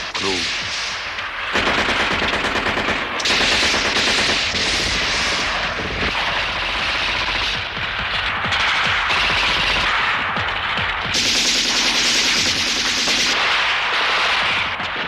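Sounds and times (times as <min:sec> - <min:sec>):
automatic gunfire: 0:01.5 - 0:07.6, 0:11.1 - 0:14.5.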